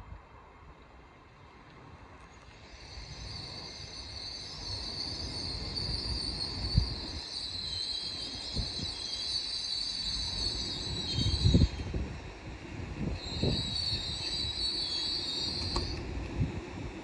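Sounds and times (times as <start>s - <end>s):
train rumble: 0.0s - 17.0s
wheels and brakes squealing: 2.3s - 12.0s, 13.1s - 16.0s.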